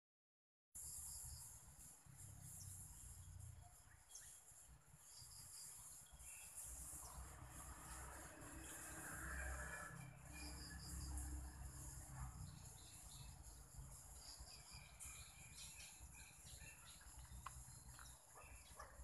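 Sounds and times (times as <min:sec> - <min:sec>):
steady high-pitched hiss: 0:00.8 - 0:09.6.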